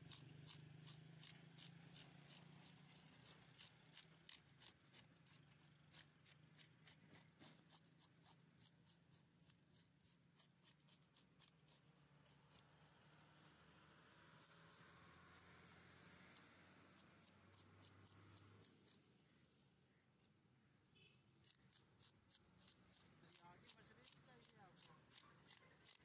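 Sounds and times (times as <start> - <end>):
blade scraping fish scales: 21.0 - 26.0.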